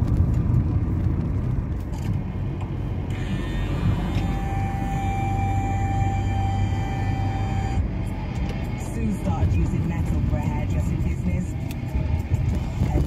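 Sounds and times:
engine and tyres rumbling: 0:00.0 - 0:13.0
electronic tones from car radio: 0:03.2 - 0:07.8.

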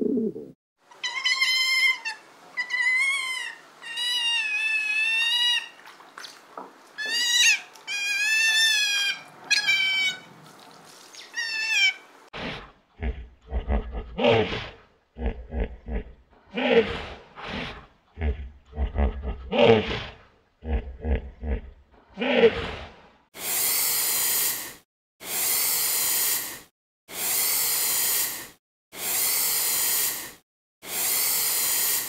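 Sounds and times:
animal high wavering cries: 0:01.0 - 0:05.8, 0:07.0 - 0:10.3, 0:11.2 - 0:12.0
animal lower rough calls: 0:11.4 - 0:23.0.

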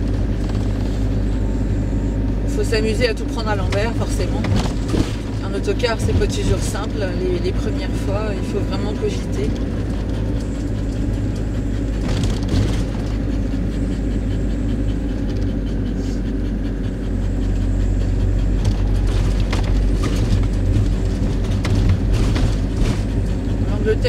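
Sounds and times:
engine and road rumble: 0:00.0 - 0:24.0.

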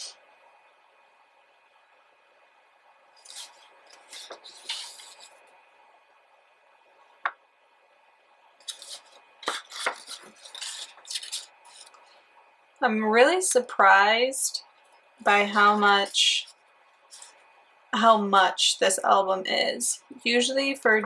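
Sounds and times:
book pages turning: 0:03.2 - 0:05.5, 0:08.6 - 0:12.0.

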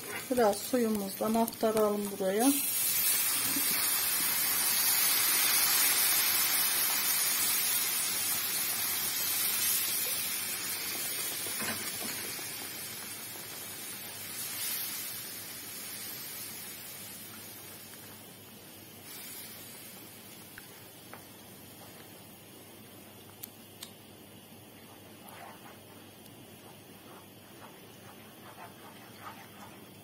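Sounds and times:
sauce sizzling in oil: 0:00.0 - 0:22.3.

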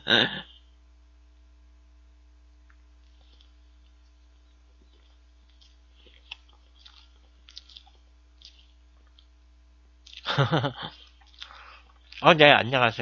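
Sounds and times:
soft chewing: 0:02.6 - 0:12.4
mouth clicks: 0:10.0 - 0:12.3
man speaking: 0:12.2 - 0:13.0.

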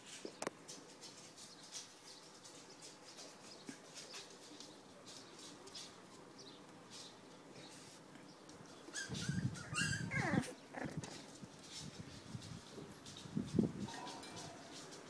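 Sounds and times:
puppies rustling on fabric: 0:00.0 - 0:15.0
puppy squeaks: 0:08.9 - 0:10.6.

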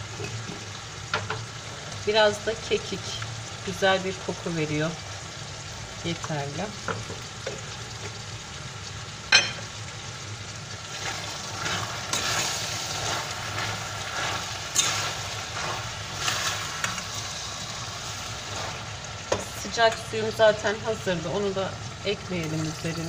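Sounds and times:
stew sizzling in a pot: 0:00.0 - 0:23.0
metal spoon scraping a pot: 0:11.0 - 0:17.1.

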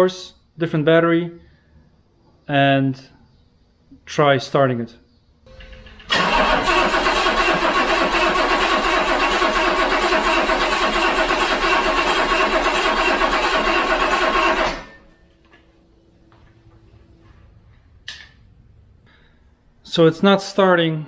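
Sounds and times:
car engine cranking on starter: 0:05.5 - 0:15.0.

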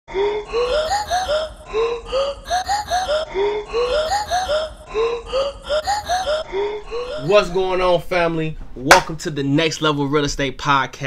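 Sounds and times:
looping vocal chop music: 0:00.1 - 0:07.9.

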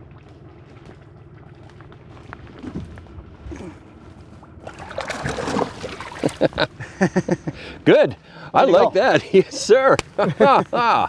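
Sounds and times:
fish splashing in water: 0:04.4 - 0:06.5.

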